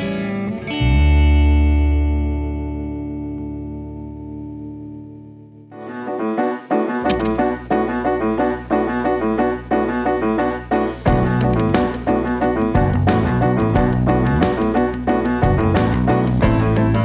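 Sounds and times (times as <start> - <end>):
held chord: 5.7 - 17.0
rhythmic keyboard pattern: 5.7 - 17.0
bass line: 7.0 - 8.4, 11.0 - 17.0.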